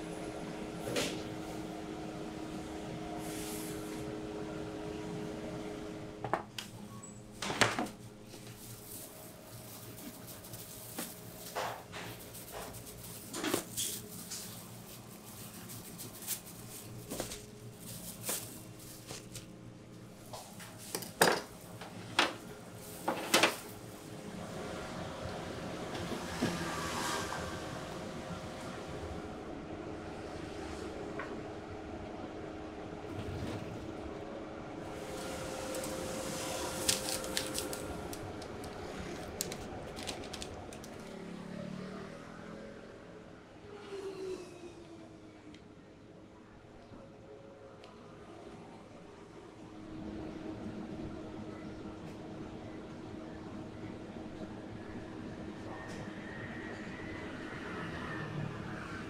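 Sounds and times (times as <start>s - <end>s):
steady background noise: 0.0s - 59.0s
paper wrapper handled: 8.4s - 19.5s, 35.1s - 41.2s.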